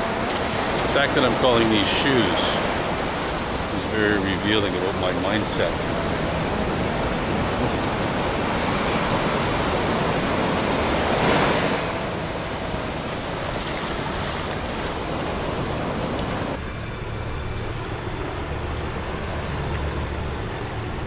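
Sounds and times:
ocean surf breaking on sand: 0.0s - 16.6s.

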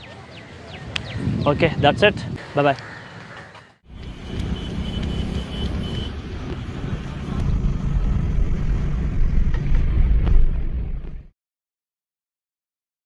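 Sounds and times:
car road and engine rumble: 3.9s - 11.3s.

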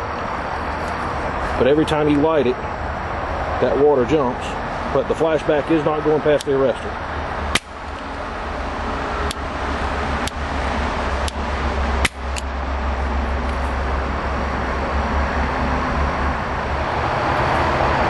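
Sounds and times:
low rumble: 7.0s - 18.0s.

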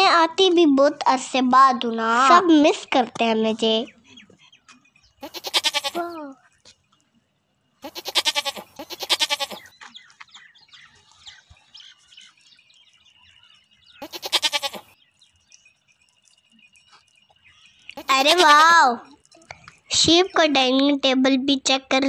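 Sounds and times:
sheep bleating: 5.2s - 6.2s, 7.8s - 9.7s, 14.0s - 14.9s, 18.0s - 18.7s.

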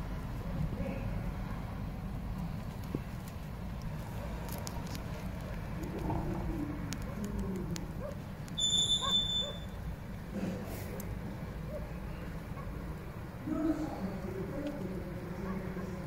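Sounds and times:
high whistling tone: 8.6s - 9.8s.

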